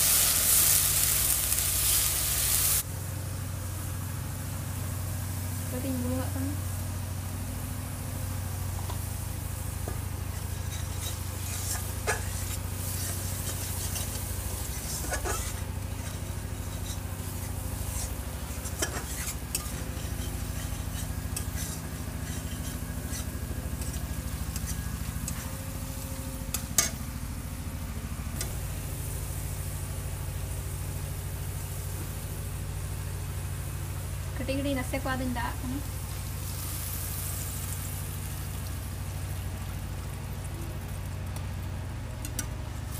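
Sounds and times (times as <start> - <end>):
paste sizzling in hot oil: 0.0 - 2.8, 4.9 - 26.0, 34.8 - 41.0
steady low hum: 0.0 - 42.9
metal spatula scraping a pan: 10.2 - 25.6.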